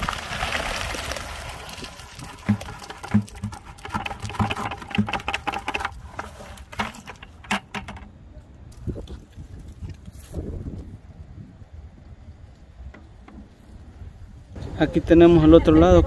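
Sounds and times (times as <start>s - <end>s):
wet concrete sliding from bucket: 0.0s - 8.0s
bucket knocking against wooden post: 2.2s - 8.2s, 12.9s - 13.6s.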